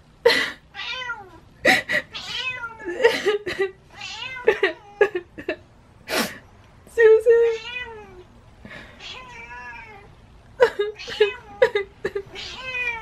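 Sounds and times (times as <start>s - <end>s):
cat meowing: 0.8s - 1.4s, 2.1s - 2.9s, 3.9s - 5.0s, 7.5s - 8.2s, 9.0s - 10.1s, 11.0s - 11.6s, 12.3s - 13.0s.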